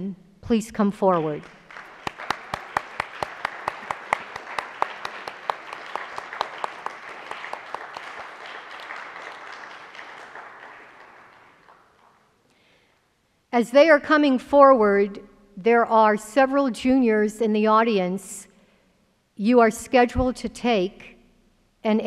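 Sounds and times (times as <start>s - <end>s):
loud single claps: 1.2s - 12.2s
audience applauding: 1.4s - 12.2s.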